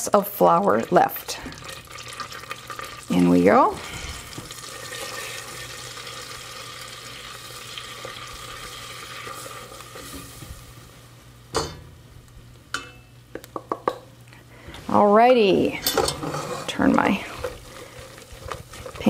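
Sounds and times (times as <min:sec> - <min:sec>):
butter sizzling in a saucepan: 0:00.3 - 0:11.1, 0:16.4 - 0:19.0
spatula stirring: 0:15.8 - 0:19.0.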